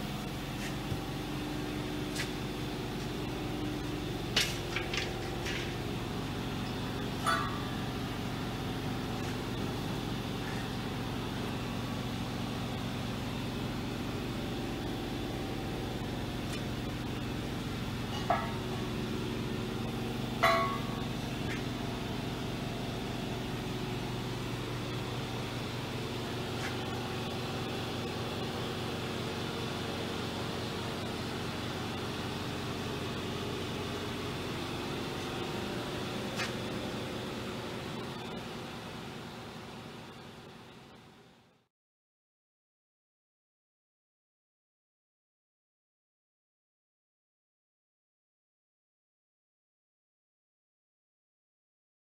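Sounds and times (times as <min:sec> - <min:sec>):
machine hum: 0:00.0 - 0:41.6.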